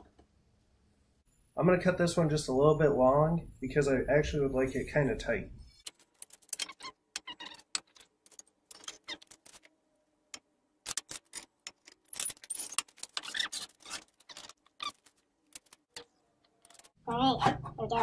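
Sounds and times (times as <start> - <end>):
wood and hand tools rattling: 5.8 - 9.7, 10.9 - 17.8.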